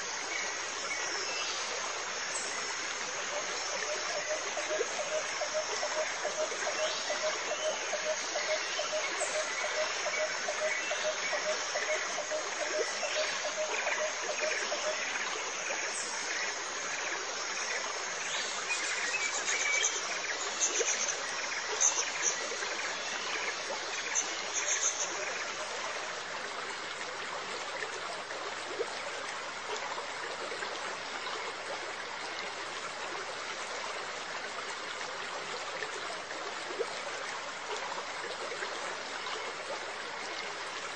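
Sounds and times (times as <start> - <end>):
trickling water: 0.0 - 40.9.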